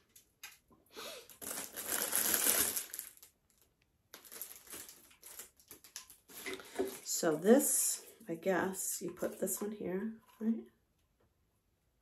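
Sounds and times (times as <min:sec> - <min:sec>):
packaging crinkling and rustling: 0:01.2 - 0:07.3.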